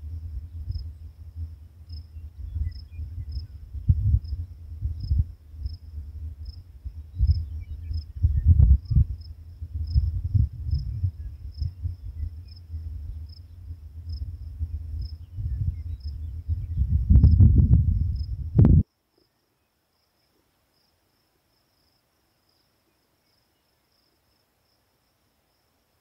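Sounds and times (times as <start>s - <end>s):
wind rumble on microphone: 0.0s - 18.9s
cricket chirping: 0.0s - 26.0s.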